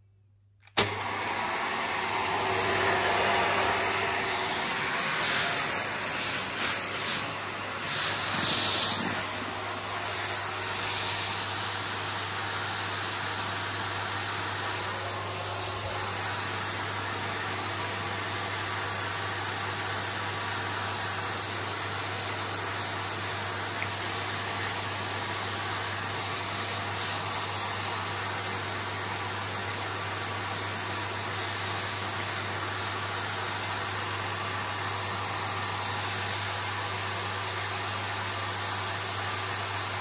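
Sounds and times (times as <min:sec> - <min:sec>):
vacuum cleaner running: 0:00.6 - 0:40.0.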